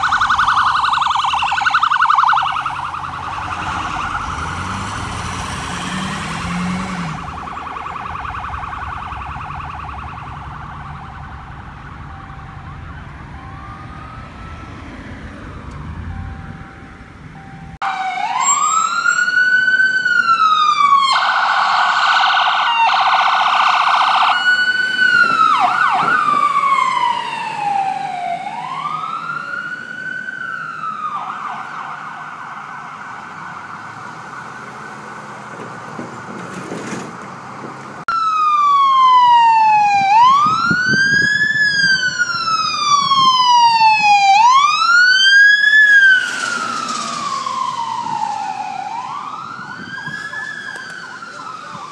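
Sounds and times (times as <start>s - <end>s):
emergency sirens wailing: 0.0s - 51.9s.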